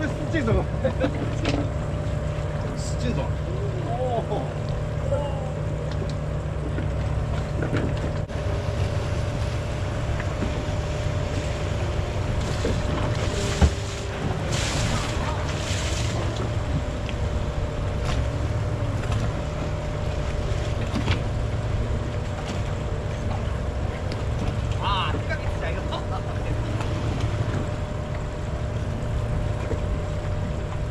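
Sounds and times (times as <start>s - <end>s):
boat engine hum: 0.0s - 30.9s
water washing against hull: 0.0s - 30.9s.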